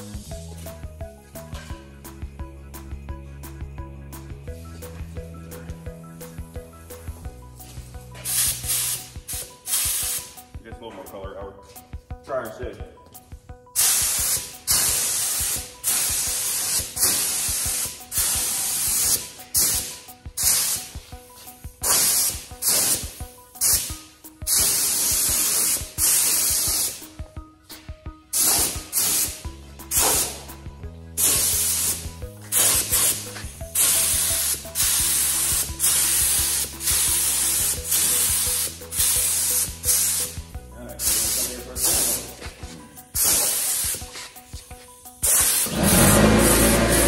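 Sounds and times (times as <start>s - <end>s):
paint spray gun hissing: 8.2s - 10.4s, 13.8s - 21.0s, 21.8s - 27.1s, 28.3s - 30.5s, 31.2s - 40.4s, 41.0s - 42.4s, 43.1s - 44.1s, 45.2s - 47.0s.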